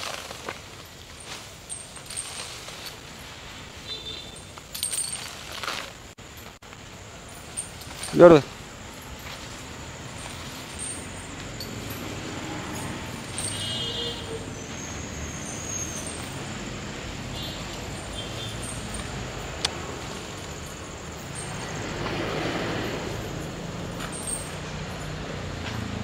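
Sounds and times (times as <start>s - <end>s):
low rumble of road traffic: 0.0s - 26.0s.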